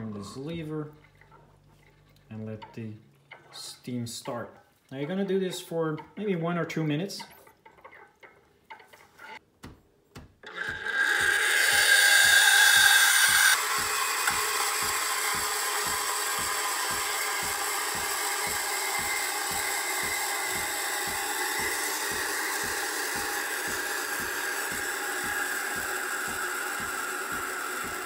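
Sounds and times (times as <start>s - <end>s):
pump chugging: 10.4s - 28.0s
steam wand hissing: 10.6s - 28.0s.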